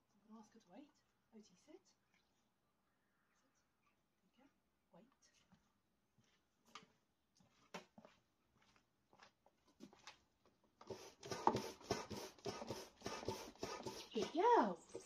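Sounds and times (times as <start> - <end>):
hand pump strokes with air rush: 10.8 - 14.7.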